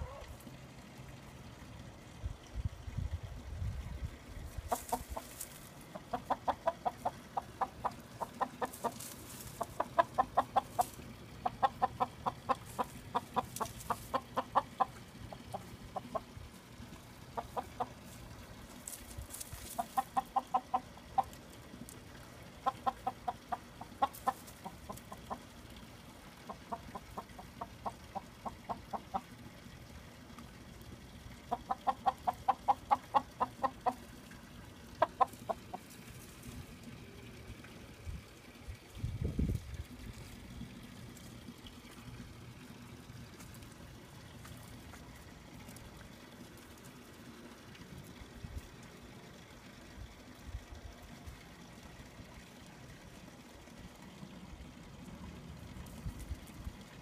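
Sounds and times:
chickens clucking: 0.0s - 0.5s, 4.4s - 29.5s, 31.2s - 37.4s.

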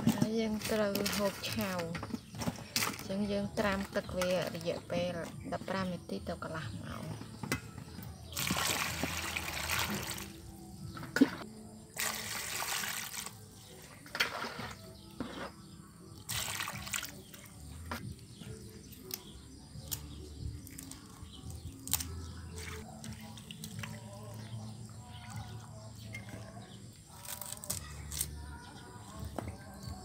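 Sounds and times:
hands splashing vegetables in water: 8.3s - 10.4s, 16.2s - 17.5s
water pouring into metal basin: 8.3s - 10.4s, 12.0s - 13.5s, 16.3s - 17.3s.

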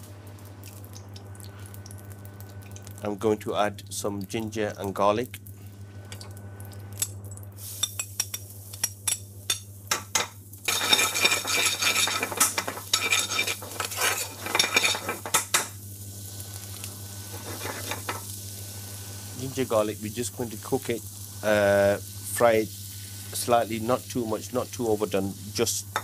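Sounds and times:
food sizzling in oil: 5.9s - 26.0s
metal spoon scraping pan: 10.7s - 15.7s, 17.3s - 18.2s.

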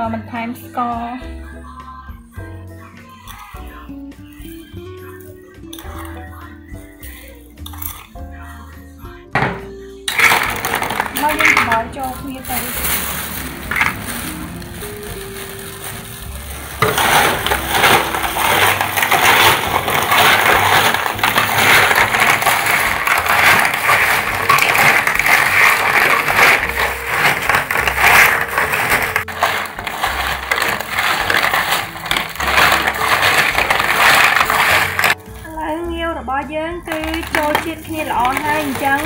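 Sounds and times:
shells clattering in metal bowl: 7.1s - 8.2s, 10.1s - 35.5s, 36.9s - 39.0s.

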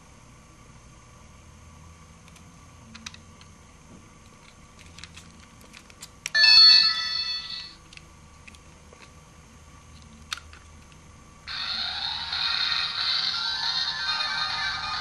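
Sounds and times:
toy wand electronic chime: 6.4s - 7.8s, 11.5s - 15.0s.

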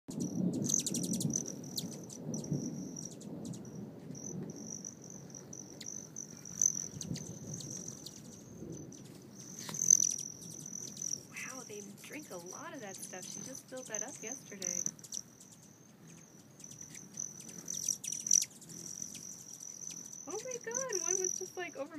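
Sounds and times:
hummingbird wingbeats humming: 0.1s - 21.9s
quick high ticking chips: 9.4s - 21.6s.

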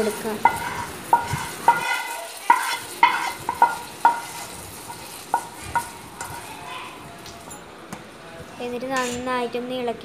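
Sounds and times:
metal spoon clinking on pot: 0.1s - 6.4s.

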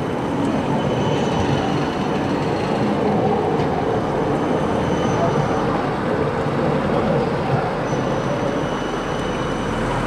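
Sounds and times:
tram wheels rumbling on rails: 0.0s - 10.0s
high wheel squeal: 0.6s - 2.1s, 3.9s - 6.0s, 7.8s - 10.0s.

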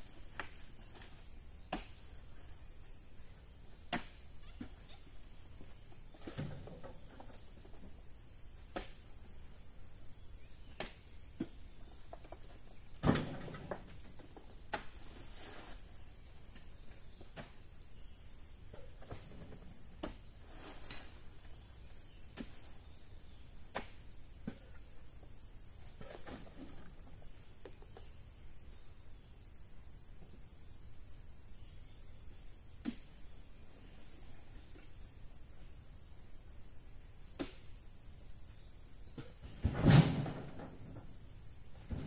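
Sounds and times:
insects droning: 0.0s - 42.0s
knocks and thuds: 13.0s - 14.0s, 39.2s - 41.1s.

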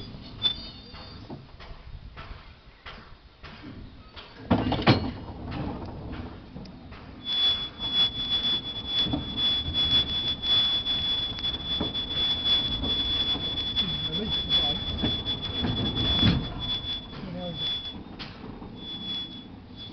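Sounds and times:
wheels squealing: 0.0s - 1.3s, 7.1s - 19.9s
train wagons rattling on track: 0.0s - 19.9s.

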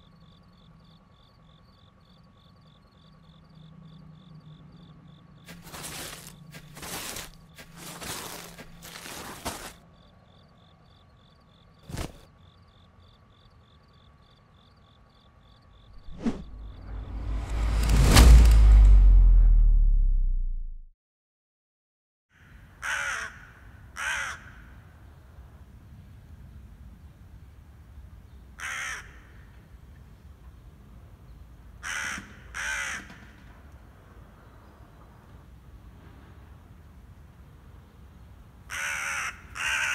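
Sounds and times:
crickets chirping: 0.0s - 17.4s
brief loud sound: 16.2s - 20.7s
crow cawing: 22.3s - 24.8s, 28.6s - 29.5s, 31.8s - 33.4s, 38.7s - 39.9s.

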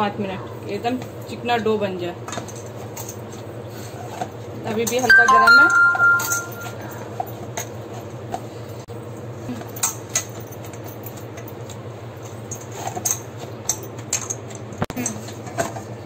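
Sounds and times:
bangles clinking: 5.1s - 7.0s.

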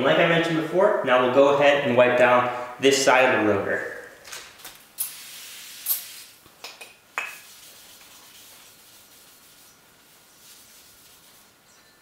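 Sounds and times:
aerosol spray hissing: 5.0s - 6.4s
rag wiping: 7.3s - 11.7s.

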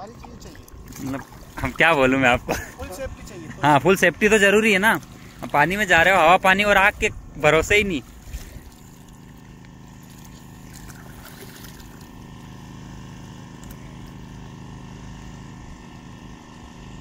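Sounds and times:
small engine running: 0.0s - 17.0s.

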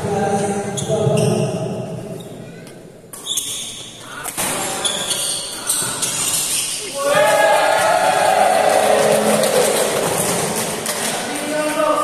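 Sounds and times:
shoe squeaks on court floor: 0.7s - 1.6s, 3.1s - 7.0s
spectators' voices echoing: 3.9s - 12.0s.

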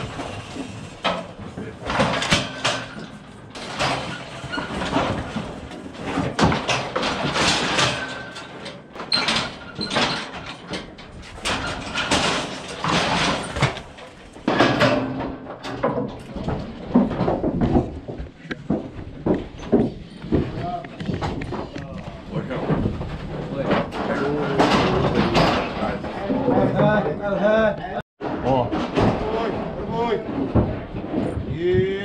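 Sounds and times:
metal gates banging shut: 0.0s - 17.8s, 22.3s - 27.2s.

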